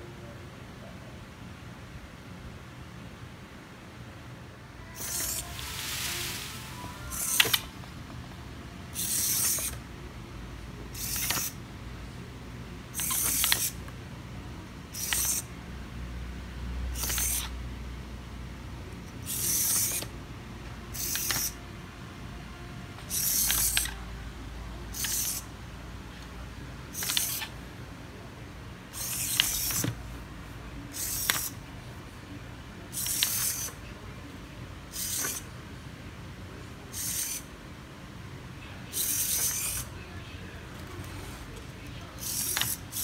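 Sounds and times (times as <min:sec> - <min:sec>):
servos whirring: 0:04.8 - 0:07.7, 0:08.9 - 0:09.8, 0:10.9 - 0:11.6, 0:13.0 - 0:13.8, 0:14.9 - 0:15.5, 0:17.0 - 0:17.5, 0:19.2 - 0:20.1, 0:23.1 - 0:24.0, 0:24.9 - 0:25.5, 0:28.9 - 0:30.0, 0:30.9 - 0:31.6, 0:34.9 - 0:35.4, 0:39.0 - 0:39.9, 0:40.8 - 0:43.0.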